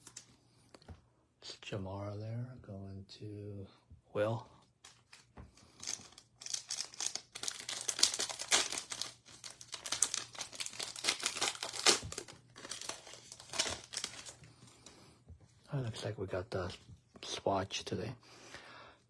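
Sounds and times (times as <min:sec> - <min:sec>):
foil wrapper crackling and rustling: 0:04.8 - 0:14.5.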